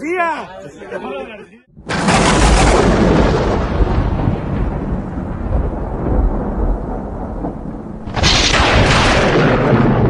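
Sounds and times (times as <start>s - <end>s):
thunder rumbling and cracking: 1.8s - 10.0s.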